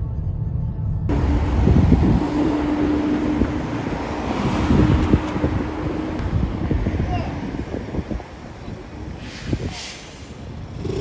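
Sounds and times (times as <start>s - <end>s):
traffic noise: 0.0s - 11.0s
wind buffeting microphone: 1.1s - 9.9s.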